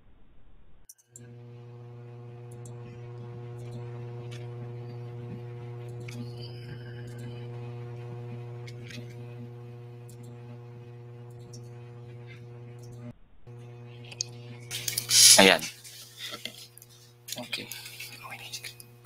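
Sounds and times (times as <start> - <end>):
electrical mains hum: 1.2 - 19.0
faint clicks: 10.0 - 10.5, 11.2 - 15.1.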